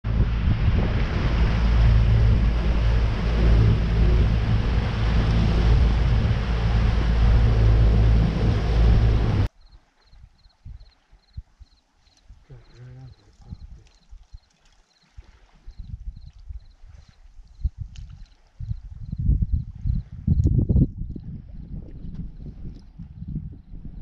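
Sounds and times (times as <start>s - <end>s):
outboard motor running: 0.0s - 9.5s
wind and water rushing: 0.0s - 12.7s, 13.4s - 20.7s.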